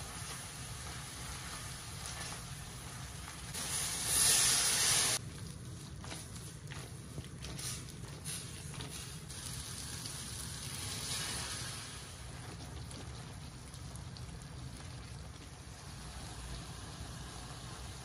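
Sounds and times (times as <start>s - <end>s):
pasta simmering in sauce: 0.0s - 18.0s
water poured into hot pan hissing: 3.5s - 5.2s, 9.3s - 18.0s.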